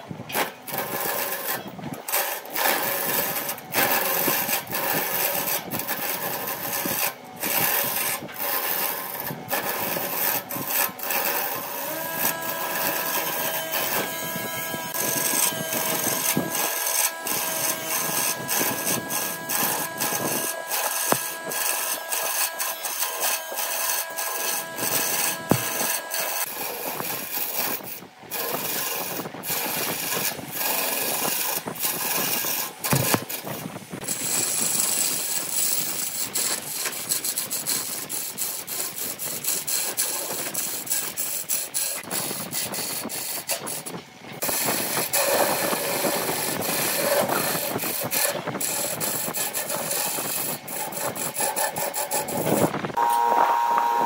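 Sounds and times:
lathe tool scraping wood: 0.0 - 54.0
steady tone: 11.8 - 26.6, 53.0 - 54.0.

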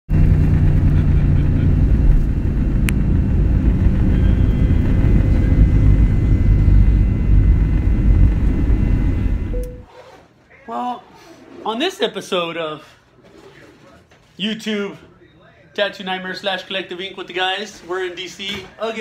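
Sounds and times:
jet engines and wheels rumbling: 0.1 - 9.8
faint high whine: 2.9 - 9.9.

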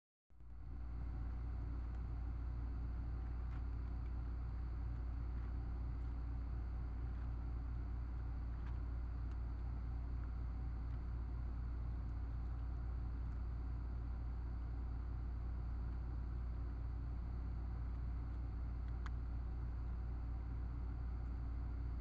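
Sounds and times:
low hum with hiss: 0.3 - 22.0
faint clicks: 17.8 - 20.1.

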